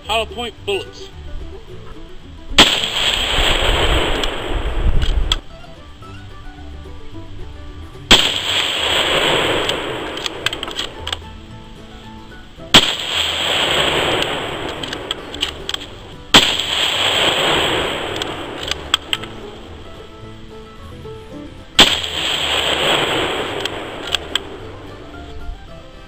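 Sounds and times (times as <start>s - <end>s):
rifle shots echoing: 2.6s - 5.4s, 8.1s - 11.2s, 12.7s - 20.0s, 21.8s - 25.0s
rifle bolt clicks: 9.6s - 11.2s, 14.2s - 17.1s, 18.1s - 19.3s, 23.6s - 24.5s.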